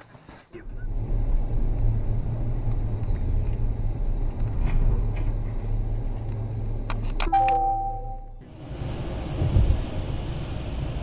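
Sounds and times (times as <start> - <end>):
car engine and road noise: 0.0 - 11.0
brief steady tone: 7.2 - 8.4.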